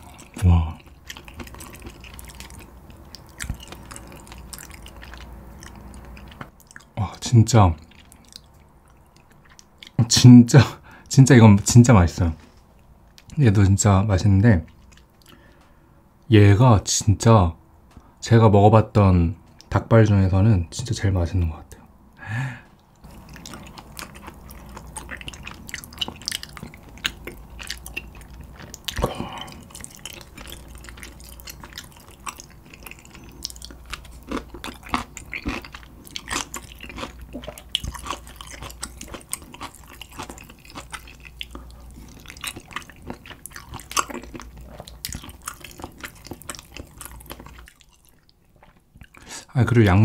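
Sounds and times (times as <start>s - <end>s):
close chewing with mouth smacks: 0.0s - 7.0s, 7.8s - 10.0s, 14.6s - 15.7s, 22.8s - 49.3s.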